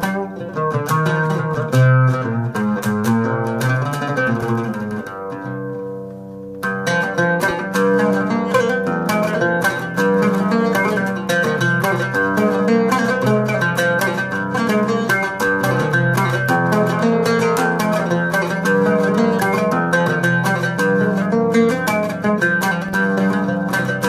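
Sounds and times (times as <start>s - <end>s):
solo oud playing: 0.0s - 24.0s.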